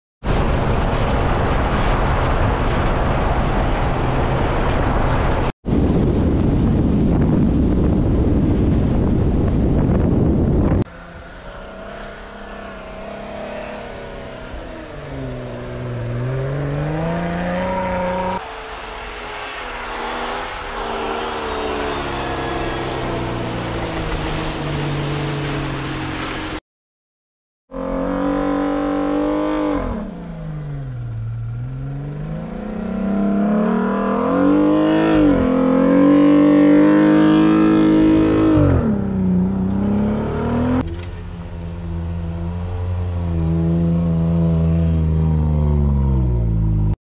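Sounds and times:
engines roaring and revving: 10.6 - 26.6, 27.7 - 47.0.

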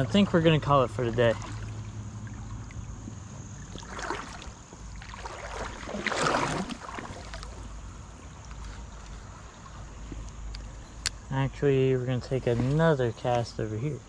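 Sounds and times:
creek water rushing: 0.0 - 11.1.

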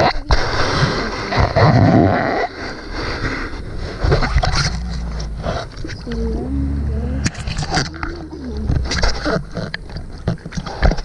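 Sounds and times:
low rumble: 3.0 - 10.4.

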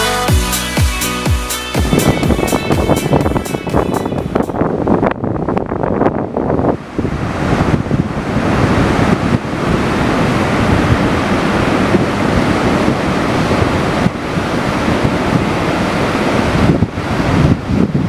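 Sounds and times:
wind rumble on microphone: 1.8 - 18.0
waves breaking on beach: 6.6 - 18.0.

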